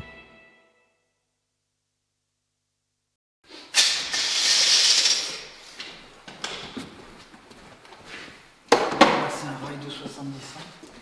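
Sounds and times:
loud hissing: 0:03.5 - 0:05.7.

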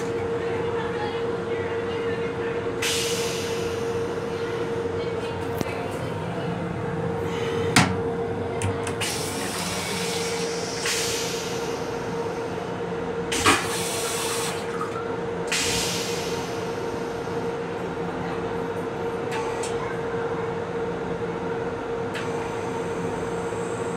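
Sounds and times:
railcar running hum: 0:00.0 - 0:23.9.

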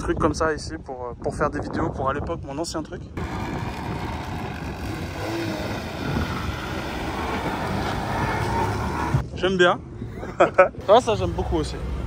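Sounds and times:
rumble of vehicle traffic: 0:03.1 - 0:12.0.

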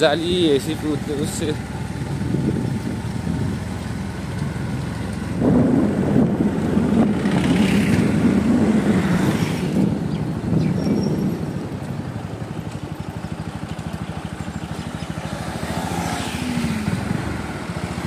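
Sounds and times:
motorcycle engine running: 0:00.0 - 0:18.0.

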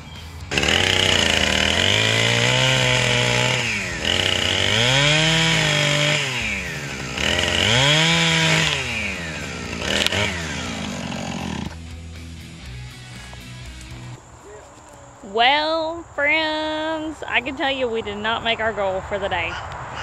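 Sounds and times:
chainsaw revving and idling: 0:00.5 - 0:14.2.

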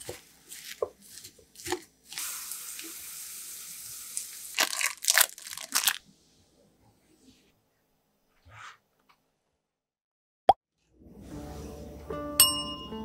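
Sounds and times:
loud crunchy crackles: 0:04.6 - 0:06.0.

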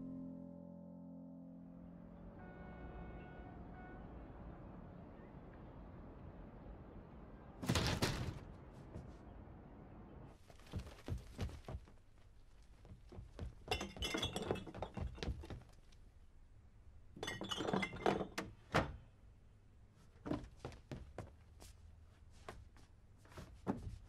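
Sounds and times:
dull thuds: 0:10.4 - 0:12.1.

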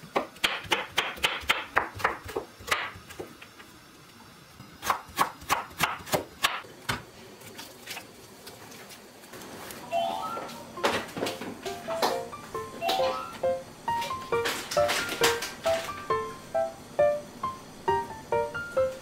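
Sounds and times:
knife chopping on wooden board: 0:00.1 - 0:03.0.

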